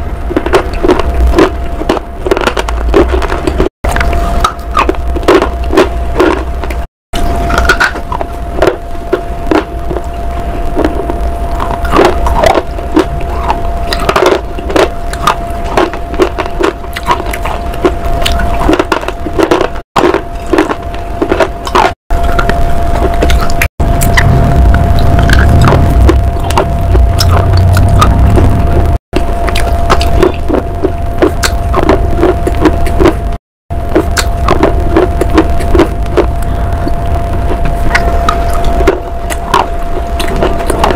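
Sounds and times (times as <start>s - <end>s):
person chewing crunchy bars: 0.0s - 28.5s, 29.2s - 40.9s
low hum: 0.0s - 40.9s
steady thin tone: 22.1s - 32.1s.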